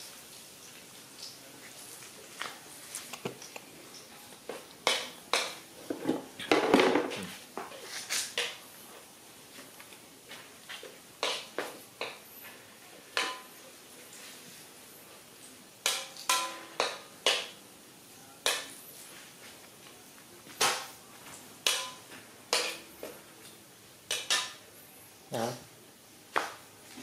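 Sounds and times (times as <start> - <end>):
metal pots and pans clanking: 4.8 - 7.2, 13.1 - 13.6, 15.8 - 17.6, 21.6 - 22.9, 24.1 - 24.6.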